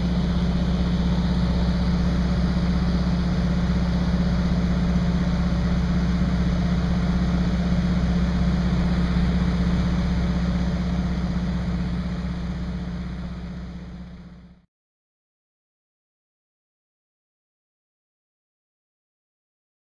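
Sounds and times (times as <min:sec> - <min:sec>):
small plane engine droning: 0:00.0 - 0:14.6.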